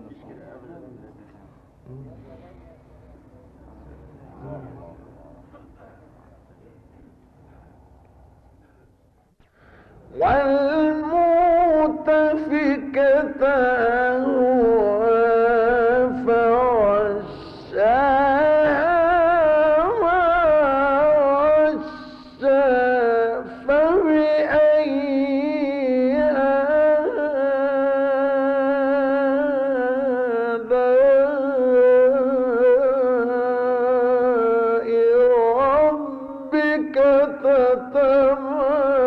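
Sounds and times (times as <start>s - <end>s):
man reciting with melodic vibrato: 10.0s - 39.0s.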